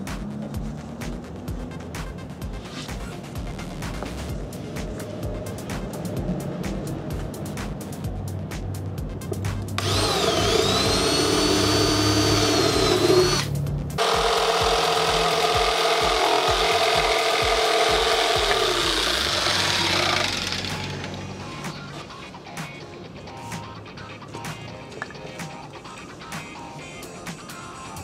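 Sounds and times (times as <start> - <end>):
background music with steady beat: 0.0 - 28.0
cordless drill boring wood: 9.8 - 21.0
jigsaw cutting plywood: 9.8 - 21.0.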